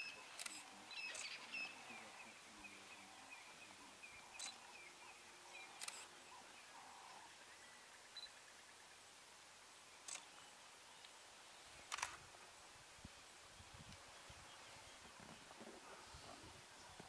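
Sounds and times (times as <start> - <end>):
faint high-pitched chirps: 0.0 - 8.4
bush ambience: 0.0 - 17.0
camera shutter clicks: 0.4 - 1.4, 5.8 - 6.1, 10.1 - 10.3, 11.9 - 12.2.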